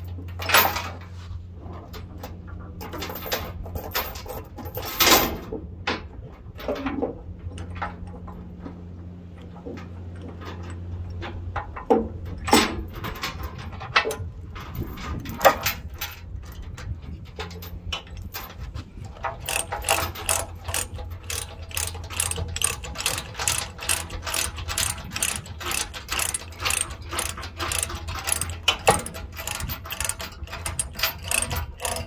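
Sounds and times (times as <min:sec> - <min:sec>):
steel chain clanking: 0:02.8 - 0:05.4, 0:10.1 - 0:32.0.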